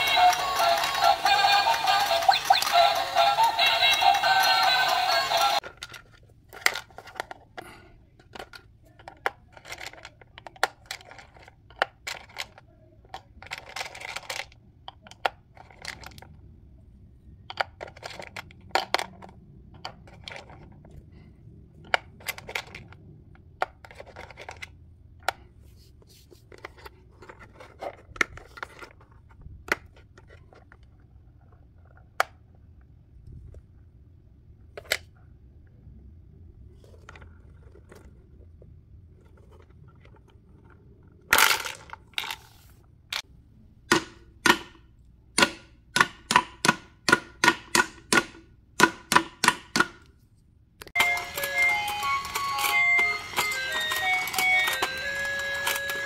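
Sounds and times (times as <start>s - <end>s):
plastic pins clicking and clattering: 5.6s - 16.3s, 50.8s - 56.0s.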